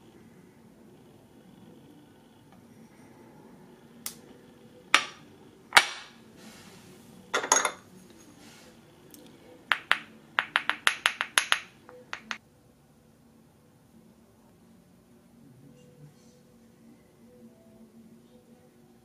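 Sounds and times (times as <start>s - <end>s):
porcelain dishes clinking: 7.3s - 7.9s
ink stick tapping porcelain dish: 9.7s - 12.4s.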